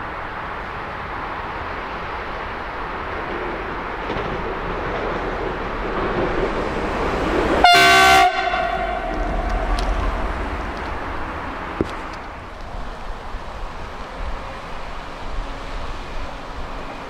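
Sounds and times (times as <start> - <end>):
diesel locomotive engine: 0.0 - 17.0
train horn blast: 7.6 - 10.6
deep rumble: 8.3 - 13.5.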